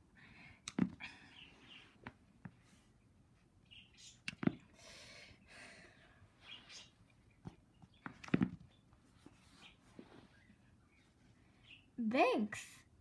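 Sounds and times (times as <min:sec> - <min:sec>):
figurines thudding on carpet: 0:04.3 - 0:04.6, 0:07.4 - 0:08.8.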